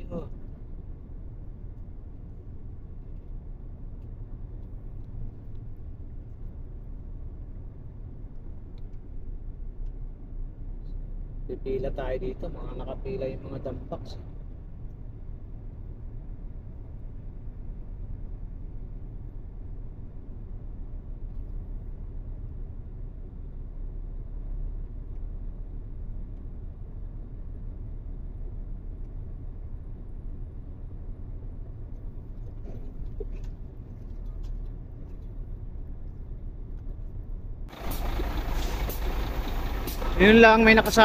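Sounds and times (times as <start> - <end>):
diesel truck engine rumbling: 0.0 - 19.0, 29.7 - 41.0.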